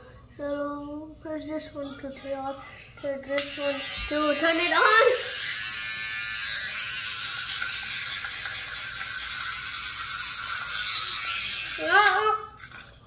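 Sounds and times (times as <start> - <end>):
electric toothbrush buzzing: 3.3 - 12.9.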